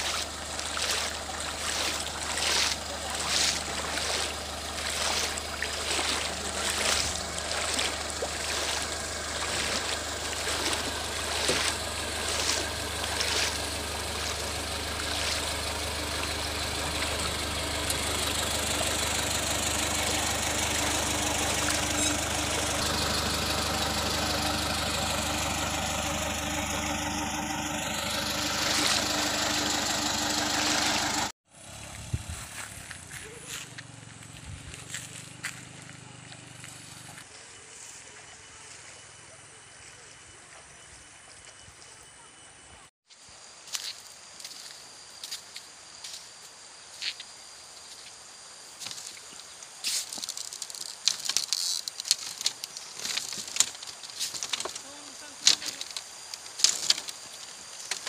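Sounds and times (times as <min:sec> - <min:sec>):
footsteps on bamboo slats: 0:00.0 - 0:31.3, 0:32.3 - 0:37.3, 0:48.8 - 0:58.0
truck engine running: 0:00.0 - 0:37.8, 0:50.1 - 0:58.0.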